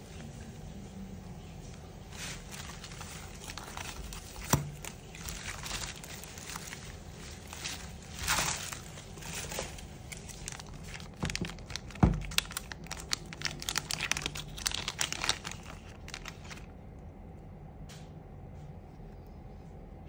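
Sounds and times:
plastic bag crinkling: 1.7s - 16.8s.

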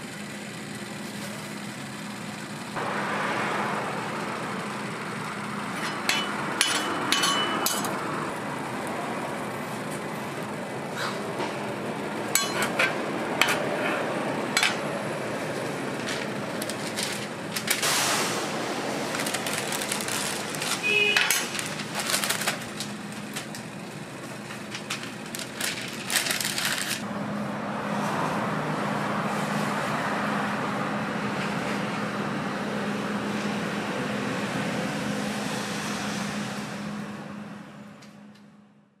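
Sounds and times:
kitchen hum: 3.9s - 27.1s
paper wrapper rustling: 15.9s - 17.9s, 18.8s - 23.7s, 24.3s - 27.0s.

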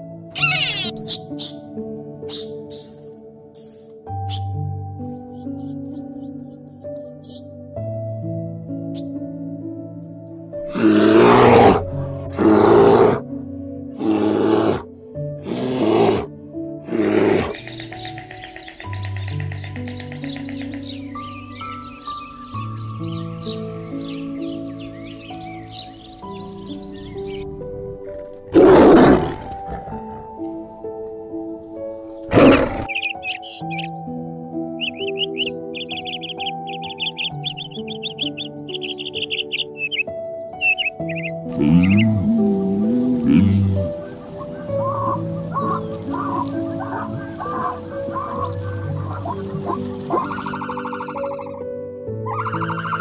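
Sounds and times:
background music: 0.0s - 53.0s
bear roaring: 10.7s - 13.3s, 14.0s - 17.6s, 28.5s - 30.4s, 32.3s - 33.0s, 41.5s - 44.1s.

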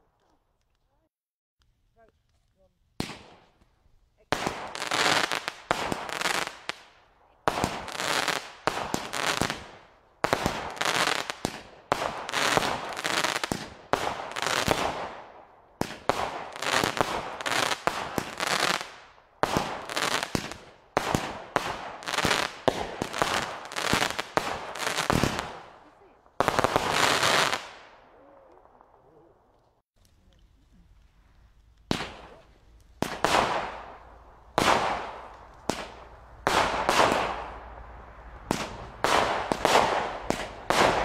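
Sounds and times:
firework volleys with crackle: 2.1s - 29.0s, 30.0s - 41.0s.

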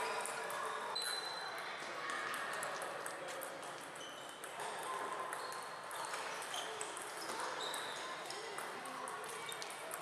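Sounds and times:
table tennis balls clicking: 2.6s - 10.0s.

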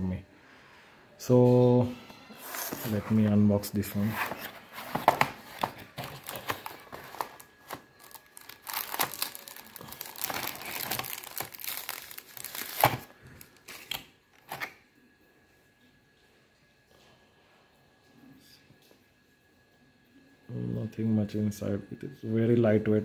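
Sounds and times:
packaging crinkling and tearing: 4.0s - 14.8s.

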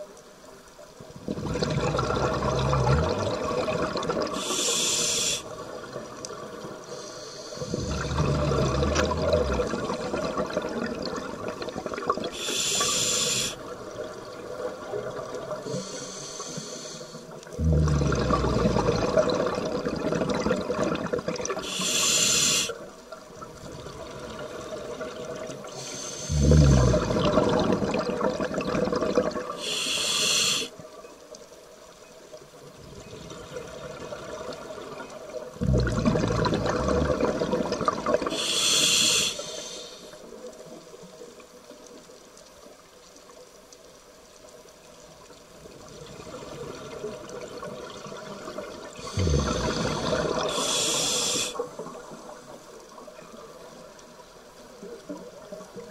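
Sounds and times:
faint steady water hiss: 0.0s - 55.9s
diver's regulator exhaust bubbles: 1.2s - 5.5s, 7.6s - 15.9s, 17.4s - 22.7s, 23.5s - 30.6s, 32.9s - 39.5s, 46.0s - 52.6s.

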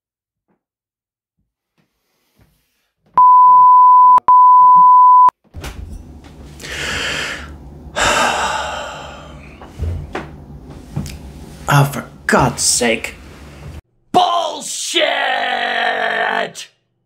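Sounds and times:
pure tone bleeps: 3.2s - 5.3s
low steady hum: 3.2s - 13.8s
heavy breaths: 6.6s - 10.1s.

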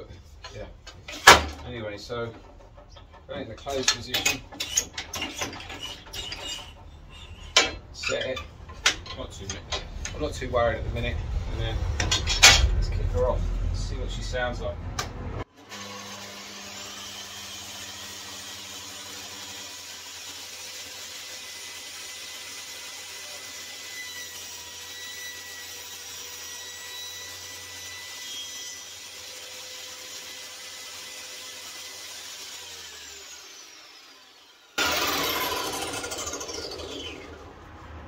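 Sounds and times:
saw blade cutting wood: 0.0s - 10.3s, 15.6s - 37.5s
table saw whining: 0.0s - 10.6s, 15.0s - 37.8s
saw spinning down: 1.1s - 14.7s, 17.6s - 37.9s.

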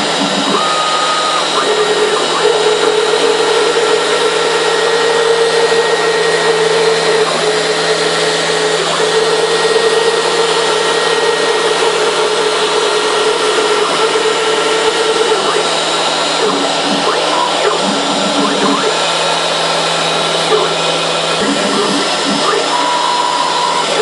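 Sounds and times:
router spindle whining: 0.0s - 24.0s.

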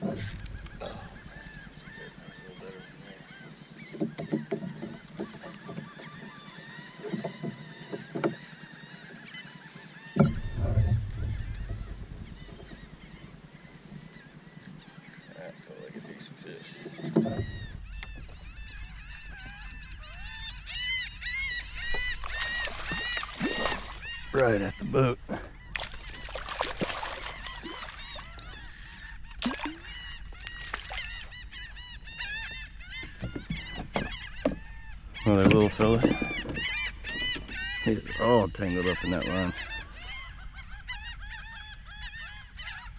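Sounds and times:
flock of birds calling: 0.0s - 42.9s
heavy low thump: 10.2s - 13.4s
fish splashing at water surface: 22.0s - 24.1s, 25.7s - 28.4s, 29.4s - 31.2s.

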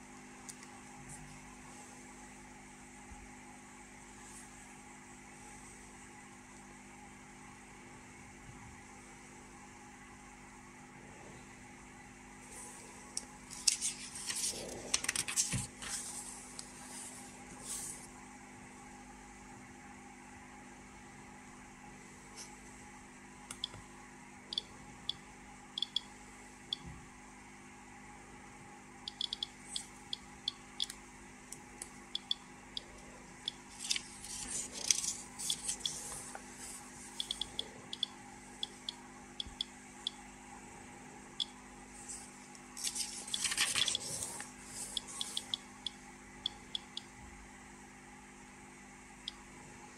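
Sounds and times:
crackling and rustling noise: 13.4s - 18.2s, 33.7s - 37.4s, 42.0s - 45.4s
paper pages turning: 13.5s - 18.0s, 33.7s - 37.2s, 42.0s - 45.4s
geiger counter clicking: 25.8s - 26.1s, 29.1s - 33.6s, 37.2s - 40.2s, 45.0s - 47.1s.

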